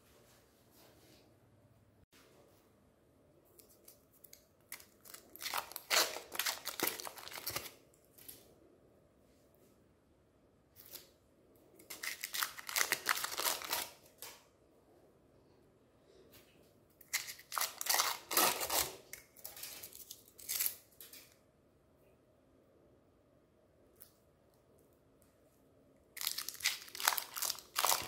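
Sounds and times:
foil wrapper crinkling and tearing: 0:04.7 - 0:07.8, 0:11.9 - 0:14.2, 0:17.1 - 0:20.9, 0:26.2 - 0:28.0.

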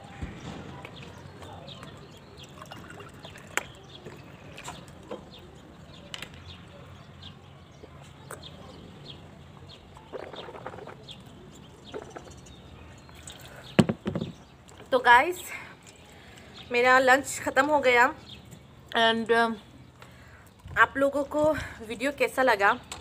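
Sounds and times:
water pouring into a cup: 0:02.3 - 0:04.6.

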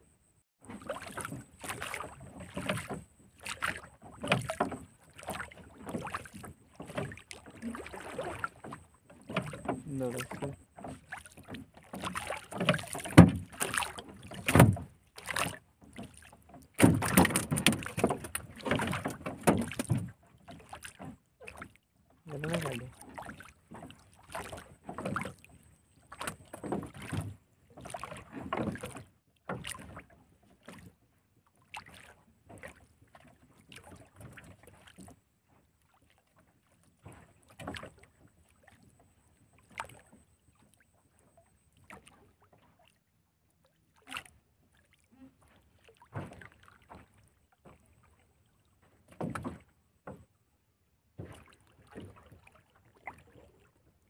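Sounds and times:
wooden boat knocks and creaks: 0:00.7 - 0:31.0, 0:31.8 - 0:35.9, 0:36.7 - 0:40.7, 0:45.8 - 0:50.4, 0:51.0 - 0:53.6.

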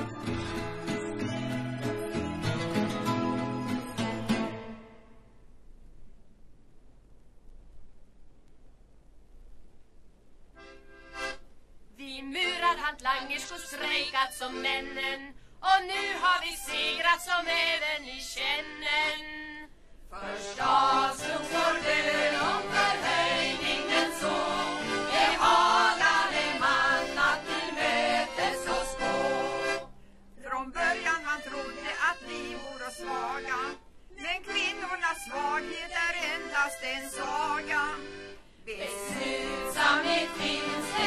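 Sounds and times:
choir of women singing: 0:20.1 - 0:29.9, 0:38.7 - 0:41.0.

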